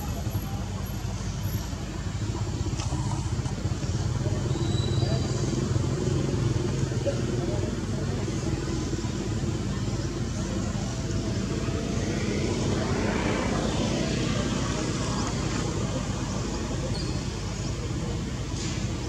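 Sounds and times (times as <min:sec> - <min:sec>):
traffic noise: 0:00.0 - 0:19.0.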